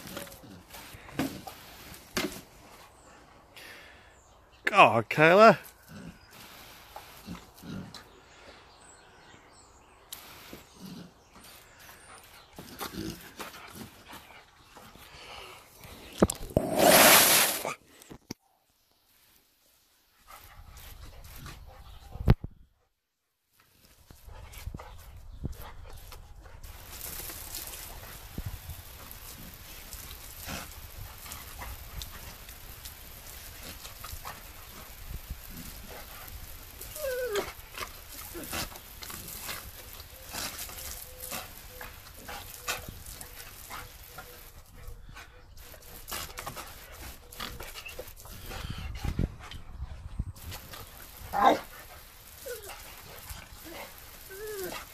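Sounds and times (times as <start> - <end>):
hose water hissing: 15.2 - 17.8, 26.6 - 44.6, 50.4 - 54.9
dog panting and whimpering: 52.4 - 54.9.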